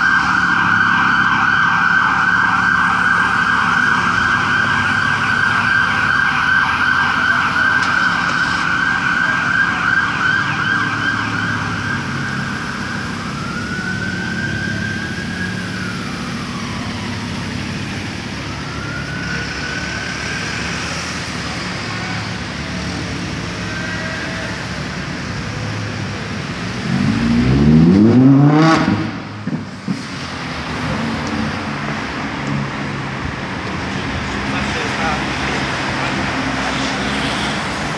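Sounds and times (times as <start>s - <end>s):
siren yelping and wailing: 0.0s - 29.3s
street traffic: 0.0s - 37.9s
car engine revving: 20.0s - 33.0s.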